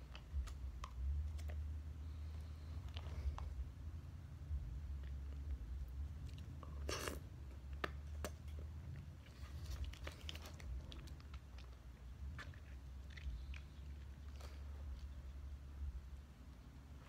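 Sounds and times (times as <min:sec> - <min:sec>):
chewing: 0:04.9 - 0:15.6.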